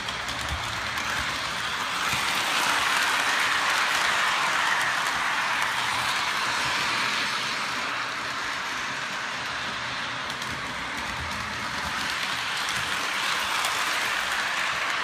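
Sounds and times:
model train running on track: 0:00.0 - 0:15.0.

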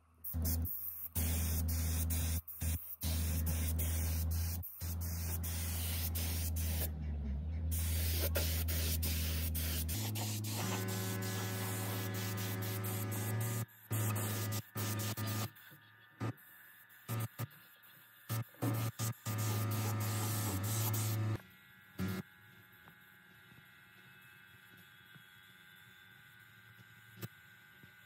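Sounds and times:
spray tool hissing: 0:00.2 - 0:06.9, 0:07.7 - 0:15.5, 0:18.3 - 0:21.4
motor humming: 0:00.3 - 0:26.4.

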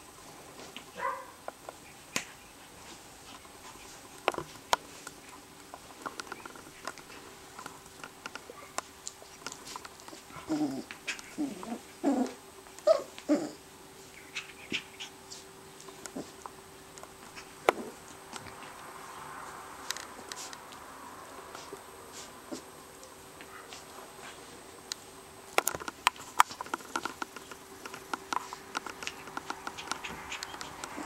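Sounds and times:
puppy play growls and whines: 0:10.1 - 0:13.7, 0:16.1 - 0:16.4, 0:17.4 - 0:18.0
light clicks and taps of toys: 0:24.9 - 0:31.0.

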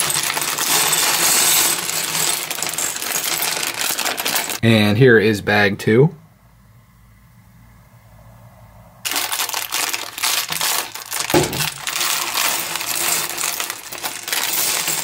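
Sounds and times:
plastic bag crinkling: 0:00.0 - 0:04.6, 0:09.1 - 0:15.0
plastic bricks clattering on table: 0:00.0 - 0:04.6, 0:09.1 - 0:15.0.

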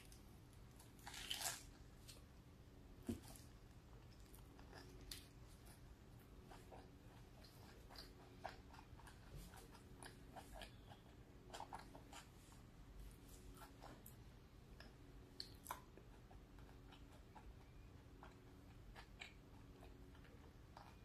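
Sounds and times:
faint low hum: 0:00.0 - 0:21.0
chewing mouth clicks and smacks: 0:14.8 - 0:21.0.

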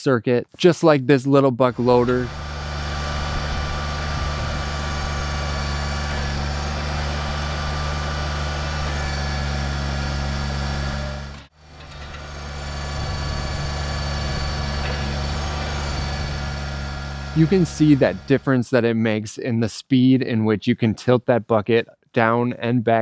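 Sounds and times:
garden tractor engine running: 0:01.6 - 0:18.5.

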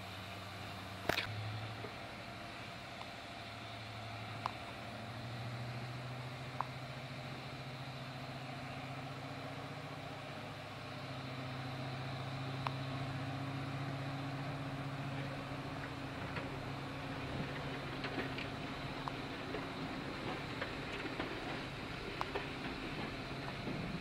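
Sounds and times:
diesel locomotive engine drone: 0:00.0 - 0:24.0.

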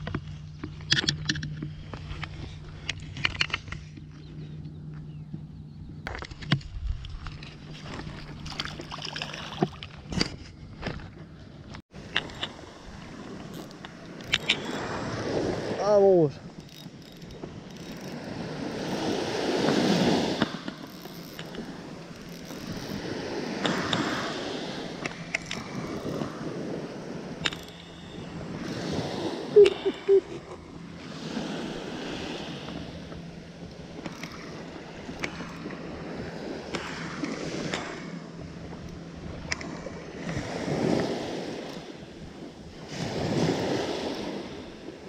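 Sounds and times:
small waves washing on sand: 0:12.0 - 0:16.5, 0:18.2 - 0:45.0
spinning reel clicking: 0:16.6 - 0:19.2, 0:20.4 - 0:24.0.

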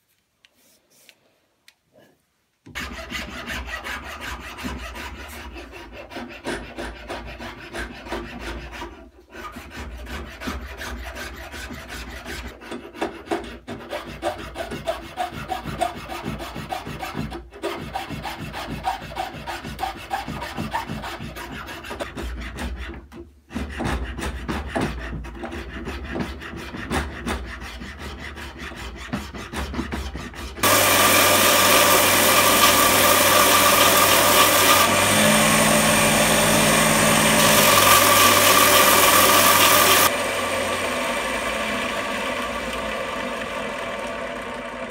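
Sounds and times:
hand file rasping on wood: 0:02.7 - 0:40.1
belt sander running: 0:30.6 - 0:44.9.

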